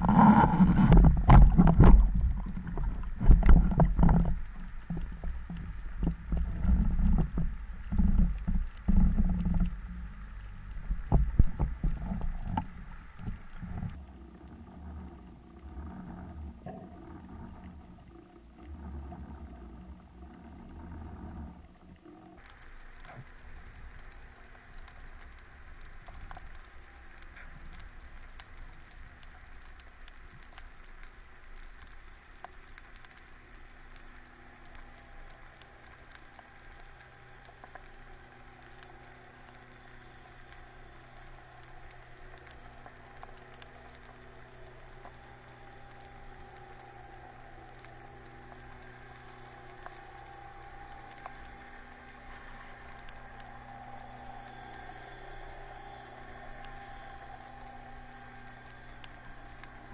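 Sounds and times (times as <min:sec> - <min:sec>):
boat engine hum underwater: 0:00.0 - 0:59.9
underwater crackle of clicks: 0:00.0 - 0:59.9.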